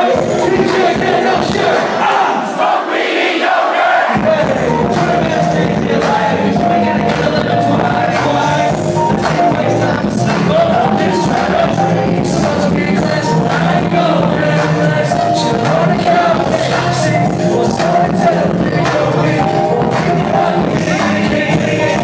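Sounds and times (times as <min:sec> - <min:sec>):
hip-hop beat with bass: 0:00.0 - 0:02.0, 0:04.1 - 0:22.0
person rapping: 0:00.0 - 0:02.0, 0:04.1 - 0:22.0.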